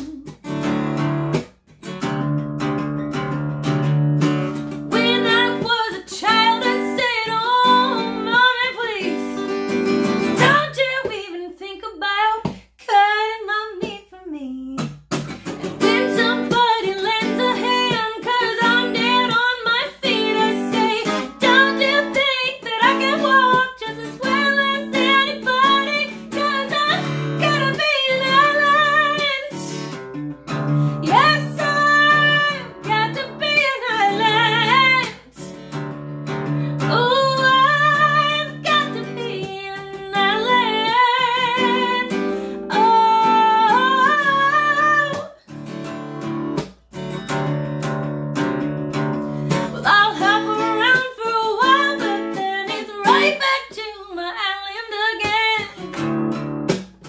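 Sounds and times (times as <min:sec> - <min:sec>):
strummed acoustic guitar: 0:00.0 - 0:11.2, 0:14.8 - 0:54.2, 0:54.9 - 0:57.0
woman singing soul song: 0:04.8 - 0:09.5, 0:10.3 - 0:14.9, 0:15.5 - 0:30.0, 0:30.6 - 0:35.8, 0:36.4 - 0:45.4, 0:49.5 - 0:55.8.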